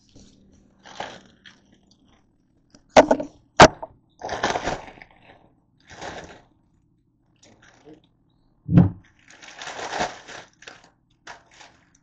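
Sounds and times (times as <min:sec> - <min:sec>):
plastic bag crinkling: 0:00.8 - 0:01.8, 0:04.2 - 0:06.5, 0:07.4 - 0:08.0, 0:09.0 - 0:12.0.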